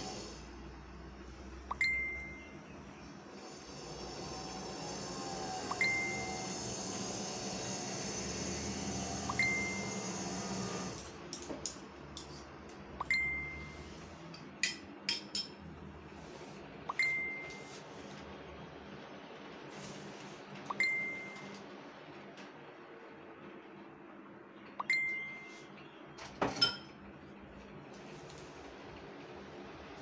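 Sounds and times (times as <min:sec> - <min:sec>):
spoons clinking on plates: 0:14.4 - 0:15.6, 0:26.5 - 0:27.0.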